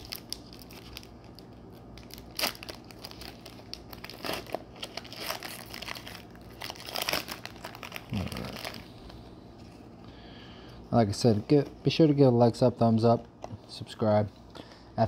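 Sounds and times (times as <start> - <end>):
foil wrapper crinkling: 0.0 - 9.2.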